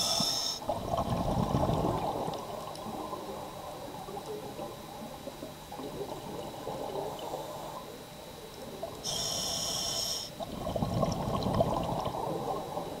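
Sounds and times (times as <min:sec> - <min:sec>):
regulator hissing inhalation: 0:00.0 - 0:00.6, 0:09.1 - 0:10.4
gurgle of exhaled bubbles: 0:00.7 - 0:04.8, 0:10.4 - 0:13.0.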